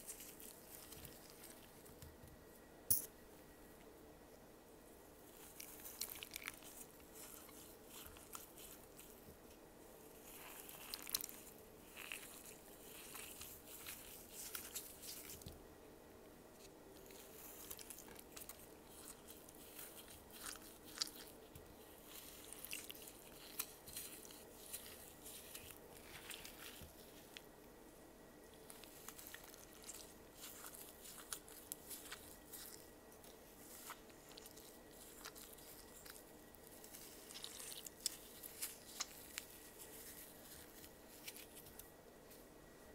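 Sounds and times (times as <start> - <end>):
wet foam crunching and squishing: 5.3 - 9.2, 10.1 - 15.5, 17.0 - 27.4, 28.6 - 41.8.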